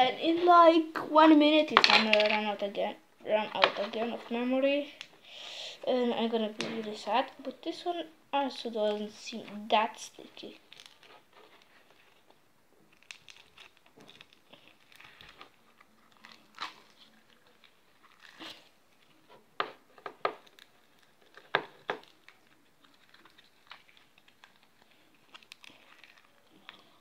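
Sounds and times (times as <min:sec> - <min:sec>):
slime crackling and popping: 0:12.9 - 0:27.0.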